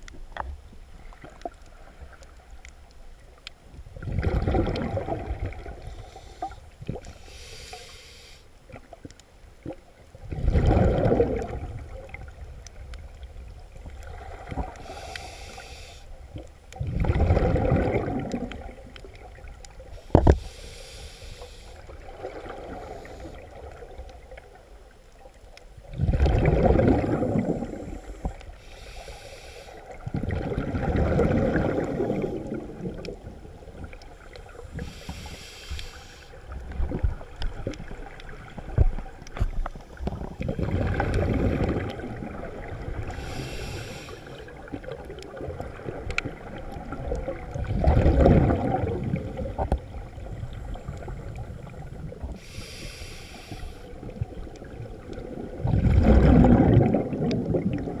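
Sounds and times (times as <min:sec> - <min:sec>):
exhaled bubbles rumbling: 0:00.0 - 0:07.3, 0:08.7 - 0:15.1, 0:16.2 - 0:20.4, 0:21.8 - 0:28.6, 0:29.8 - 0:35.3, 0:36.3 - 0:52.8, 0:53.9 - 0:58.0
regulator inhalation hiss: 0:07.2 - 0:08.5, 0:14.8 - 0:16.2, 0:20.0 - 0:21.9, 0:27.8 - 0:29.9, 0:34.8 - 0:36.4, 0:43.1 - 0:44.5, 0:52.4 - 0:54.0.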